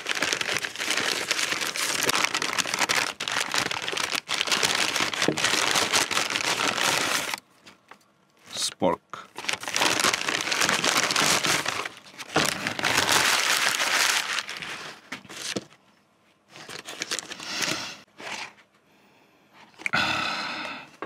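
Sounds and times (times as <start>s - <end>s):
paper bag crumpling and rustling: 0.0s - 7.4s, 9.3s - 15.8s, 16.5s - 18.6s.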